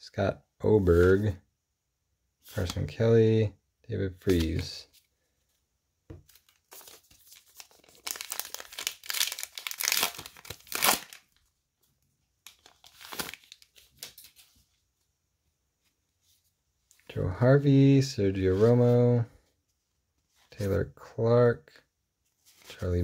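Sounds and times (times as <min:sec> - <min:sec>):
wrapper tearing and crinkling: 0:06.4 - 0:11.4, 0:12.4 - 0:14.3.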